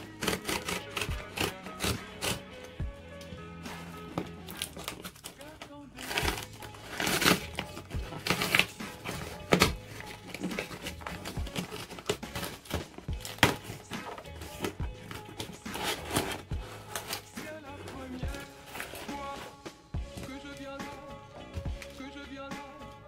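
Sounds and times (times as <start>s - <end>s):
background music: 0.0s - 23.0s
plastic pouch crinkling and ripping: 4.3s - 17.4s.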